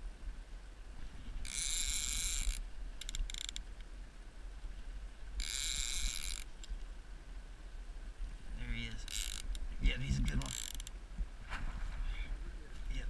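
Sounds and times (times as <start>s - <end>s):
fishing reel drag buzzing: 1.4s - 3.6s, 5.4s - 6.6s, 9.0s - 10.9s.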